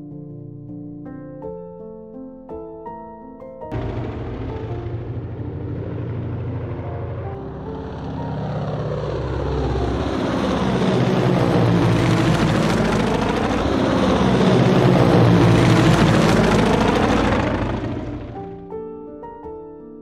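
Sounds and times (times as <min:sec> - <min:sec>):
propeller plane flying past: 0:03.7 - 0:18.6.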